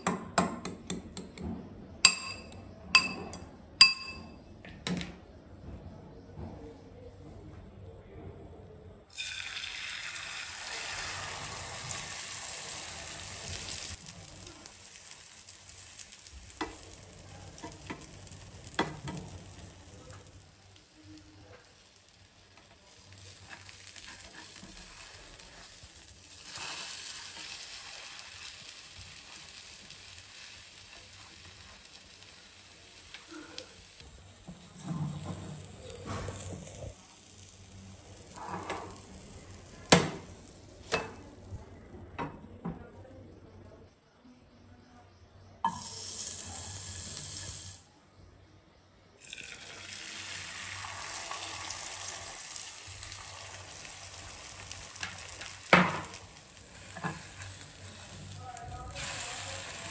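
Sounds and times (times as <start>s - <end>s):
batter sizzling in hot oil: 9.1s - 41.2s, 45.7s - 47.9s, 49.2s - 59.9s.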